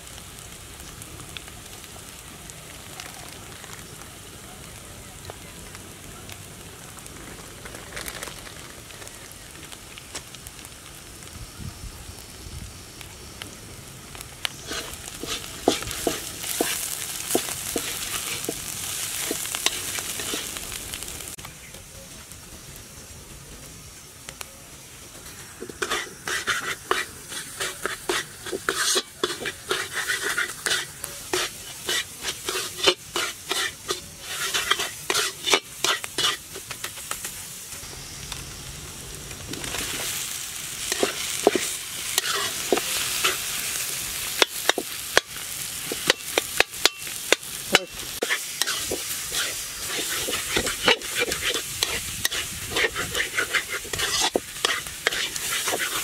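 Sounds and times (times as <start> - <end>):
food sizzling in oil: 0.0 - 56.0
utensil scraping and knocking pan: 14.6 - 20.5, 25.6 - 36.6, 45.9 - 56.0.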